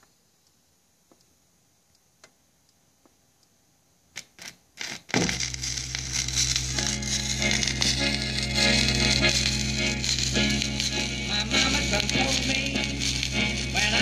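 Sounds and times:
record surface hiss and crackle: 0:00.0 - 0:14.0
recorded music: 0:05.1 - 0:14.0.

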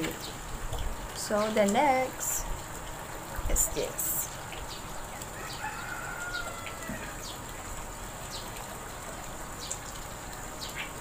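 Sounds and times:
rooster crowing: 0:05.4 - 0:07.2.

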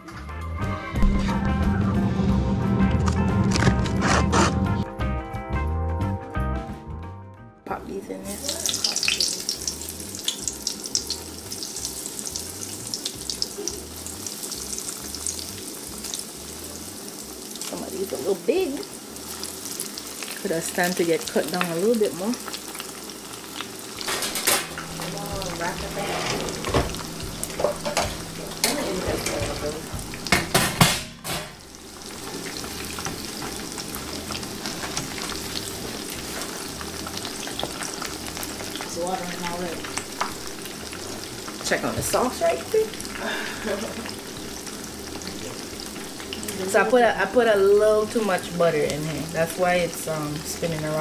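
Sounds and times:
food frying in hot oil: 0:07.9 - 0:51.0
metal tray set down: 0:24.0 - 0:25.1, 0:26.0 - 0:29.6, 0:30.3 - 0:31.6.

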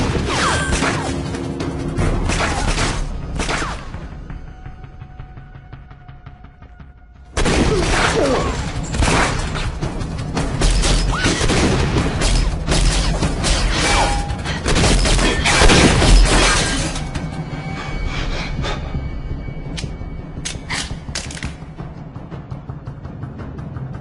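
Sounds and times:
dramatic music: 0:00.0 - 0:24.0
crashes and shattering impacts: 0:10.4 - 0:17.2.

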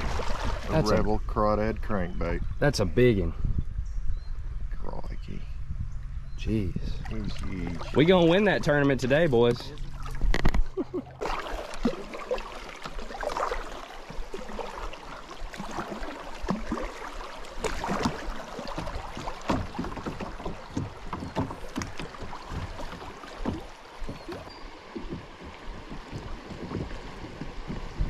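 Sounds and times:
water splashing against kayak hull: 0:00.0 - 0:01.1, 0:06.9 - 0:28.0
steady wash of water: 0:00.0 - 0:01.2, 0:06.8 - 0:28.0.

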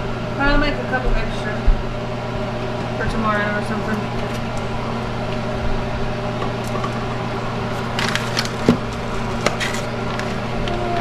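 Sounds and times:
low machine hum: 0:00.0 - 0:11.0
cookware and utensils clattering: 0:07.8 - 0:10.5.

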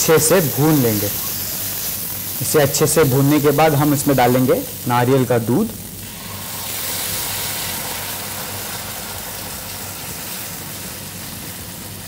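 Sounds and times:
liquid sizzling in hot pan: 0:00.0 - 0:12.0.

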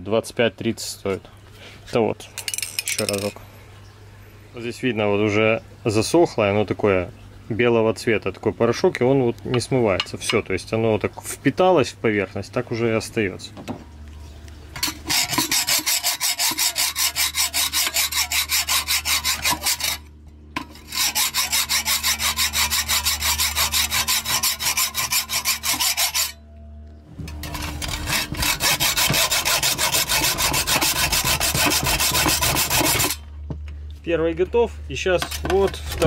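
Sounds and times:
hacksaw sawing metal: 0:14.8 - 0:26.4, 0:27.3 - 0:33.2.

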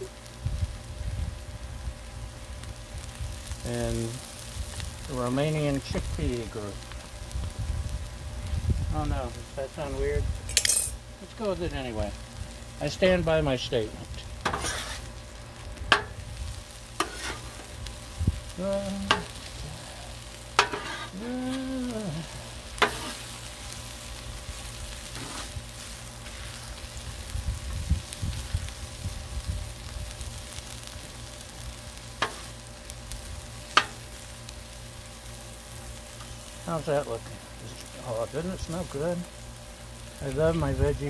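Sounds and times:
vegetables sizzling on a griddle: 0:00.0 - 0:41.0
metal spatula scraping metal plate: 0:14.4 - 0:15.0, 0:17.0 - 0:17.6, 0:20.6 - 0:21.1.

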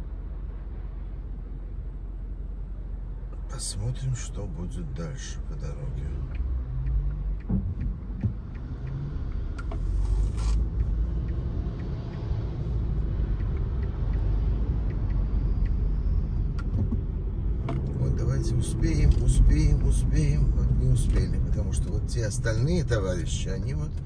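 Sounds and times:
car engine and tyre rumble: 0:00.0 - 0:24.0.

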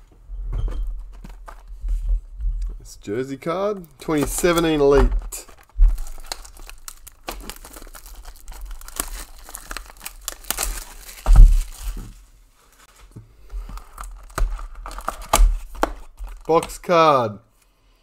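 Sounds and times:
plastic wrap crinkling: 0:00.9 - 0:02.0, 0:03.6 - 0:16.9
box thudding: 0:04.0 - 0:08.1, 0:08.9 - 0:12.2.

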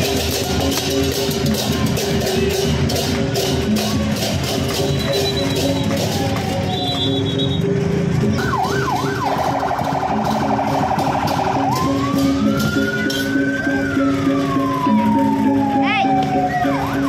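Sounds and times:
electronic vehicle siren: 0:04.9 - 0:07.6, 0:08.3 - 0:17.0.

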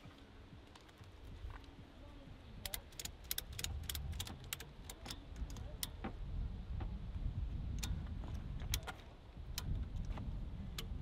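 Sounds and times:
ratchet strap clicking: 0:02.6 - 0:06.0, 0:07.7 - 0:11.0.

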